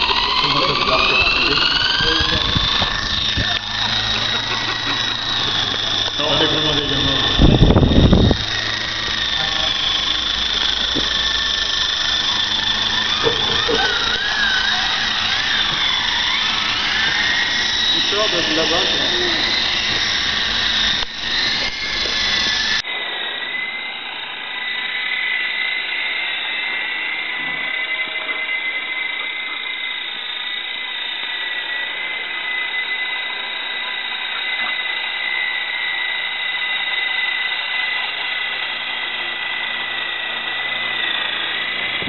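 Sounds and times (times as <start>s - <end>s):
rc helicopter rotor whine: 0.0s - 42.0s.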